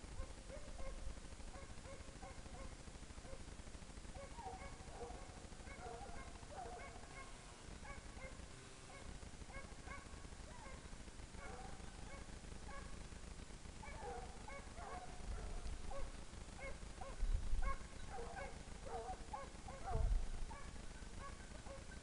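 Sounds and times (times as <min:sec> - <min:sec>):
hounds baying: 0:00.2 - 0:03.5, 0:04.1 - 0:13.0, 0:13.8 - 0:22.0.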